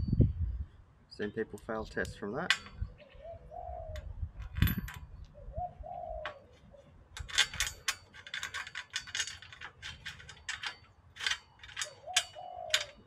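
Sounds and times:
dove cooing: 2.9s - 4.1s, 5.3s - 7.1s, 11.8s - 13.0s
rapid metallic clicking of tools: 7.2s - 13.0s.

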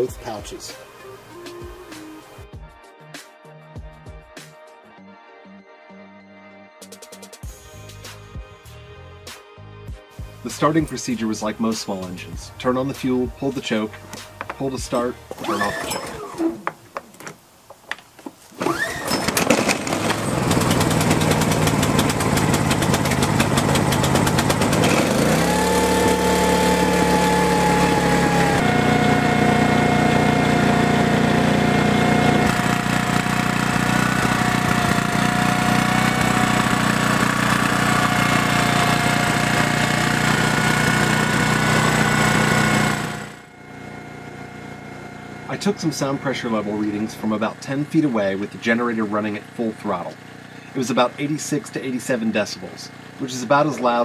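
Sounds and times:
generator engine running: 11.2s - 16.6s, 18.6s - 54.0s
pull starter: 14.1s - 16.7s, 18.6s - 50.8s.

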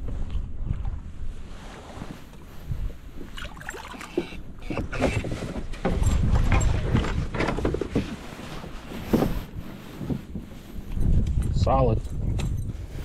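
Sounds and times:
knocks and scuffs on kayak: 4.0s - 10.6s.

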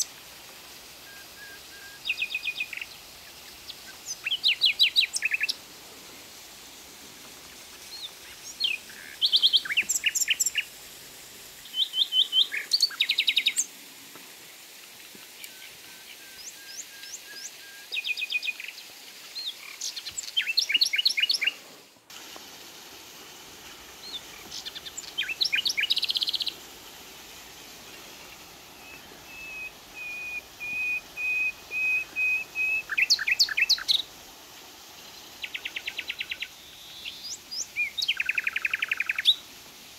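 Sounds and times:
faint steady hiss: 0.0s - 39.9s
songbirds chirping and trilling: 28.3s - 34.0s.

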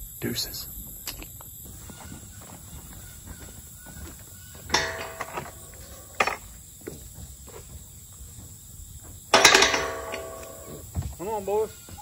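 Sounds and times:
metal gate latch clanking: 4.7s - 6.4s, 9.3s - 10.8s
metal gate clanging shut: 4.7s - 6.5s, 9.3s - 10.8s.

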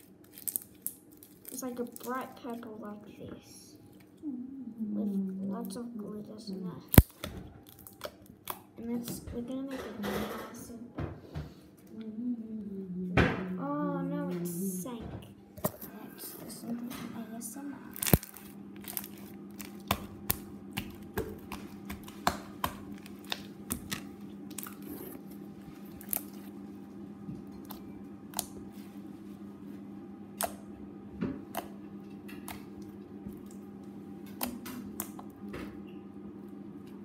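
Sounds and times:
low hum: 11.8s - 37.0s
slime clicking and popping: 18.0s - 24.8s.

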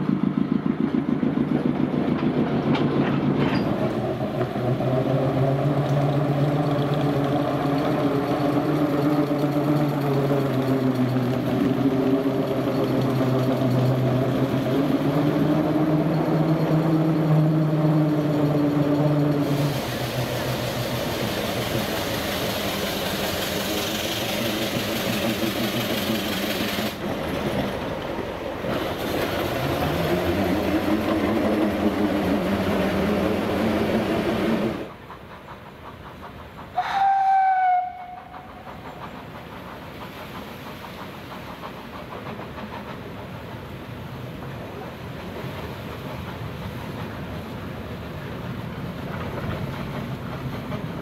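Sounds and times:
steam locomotive running: 0.0s - 51.0s
steam locomotive whistle: 36.8s - 38.7s.

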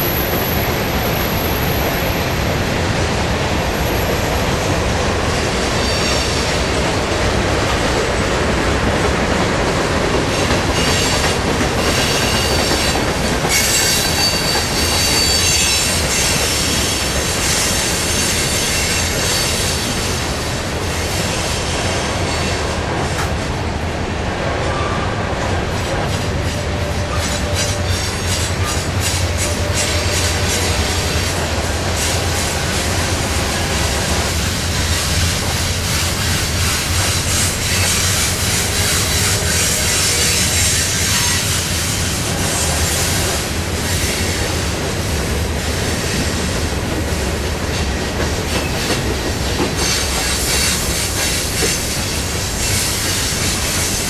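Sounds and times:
train wheels rumbling on rail: 0.0s - 54.0s
high-pitched wheel squeal: 11.8s - 16.7s
clacking over rail joints: 44.2s - 54.0s.

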